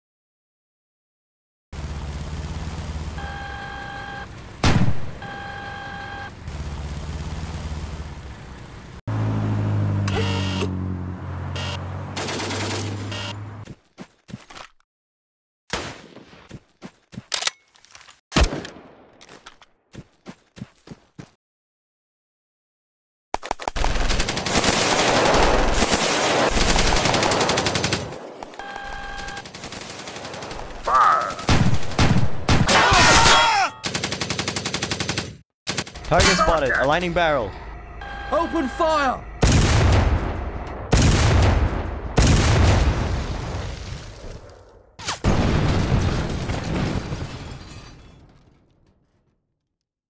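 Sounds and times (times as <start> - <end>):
electronic beeping tone: 3.2 - 4.3, 5.2 - 6.3, 10.1 - 10.8, 11.5 - 11.8, 36.2 - 39.4
machine-gun fire: 12.2 - 13.0, 23.4 - 28.3, 29.1 - 32.8, 33.8 - 36.6, 39.4 - 43.2
loud blast: 39.4 - 43.6.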